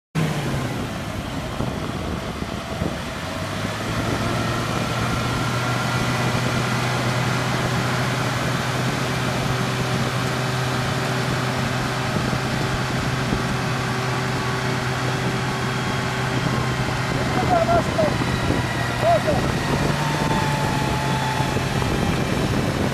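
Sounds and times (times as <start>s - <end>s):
engine droning: 0.2s - 22.9s.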